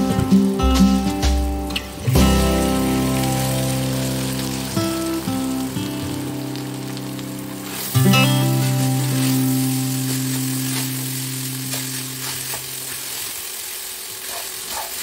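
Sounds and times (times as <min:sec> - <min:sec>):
oil sizzling: 0:00.0 - 0:15.0
spatula stirring rice in pan: 0:07.7 - 0:15.0.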